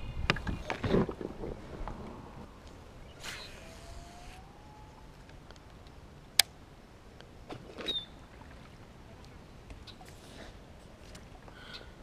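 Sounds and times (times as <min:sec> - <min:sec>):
fishing rod swish: 0:03.2 - 0:04.4.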